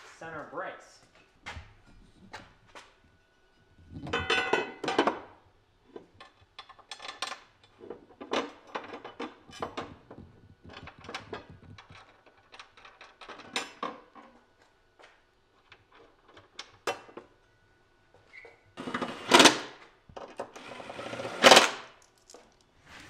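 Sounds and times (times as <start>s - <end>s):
metal clinking and clanking: 3.9s - 5.2s.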